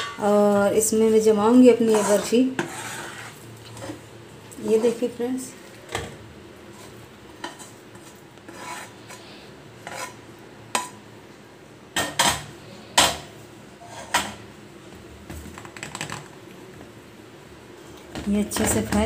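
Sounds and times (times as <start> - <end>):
metal ladle scraping a steel plate: 1.9 - 4.0, 8.5 - 9.2, 9.8 - 10.2.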